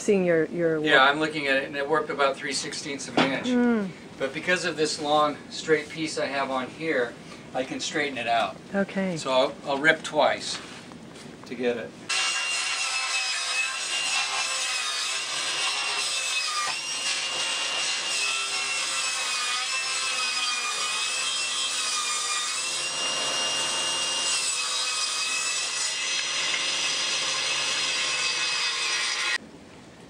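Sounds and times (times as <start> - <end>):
table saw ripping board: 12.1 - 29.4.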